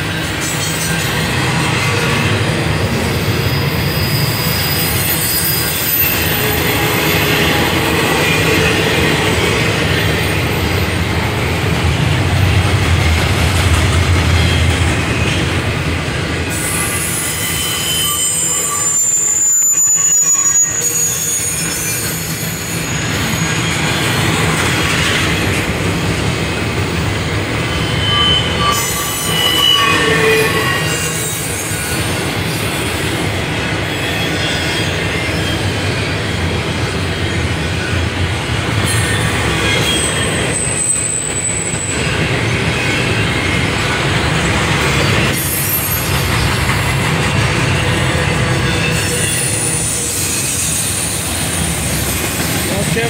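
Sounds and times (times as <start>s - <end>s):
train wheels rumbling on rail: 0.0s - 53.0s
high-pitched wheel squeals: 0.5s - 9.2s, 16.5s - 24.5s, 27.5s - 35.8s, 38.8s - 53.0s.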